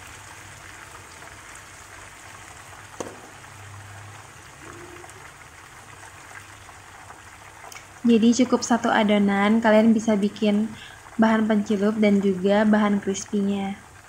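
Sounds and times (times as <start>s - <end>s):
food deep-frying in hot oil: 0.0s - 14.0s
sharp knock: 3.0s - 3.4s.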